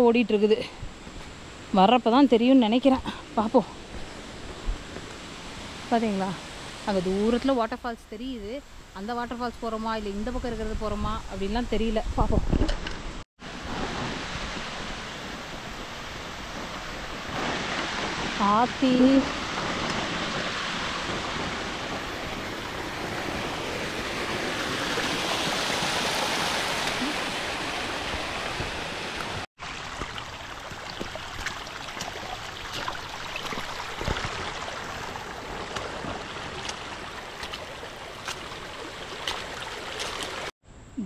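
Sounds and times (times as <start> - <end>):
stream water rushing: 3.4 - 7.5, 13.4 - 40.5.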